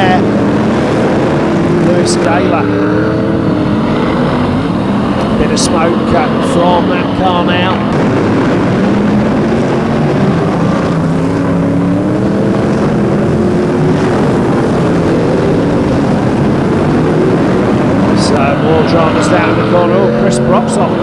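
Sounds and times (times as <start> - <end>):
stock car engines racing: 0.0 - 21.0.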